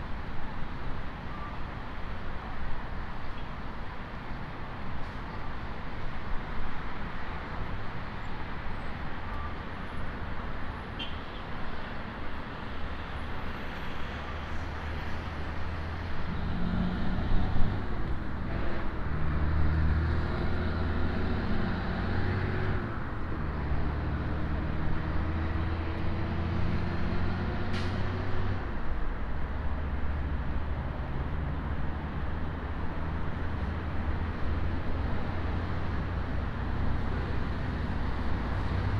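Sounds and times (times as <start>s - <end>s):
passing cars: 3.5s - 38.9s.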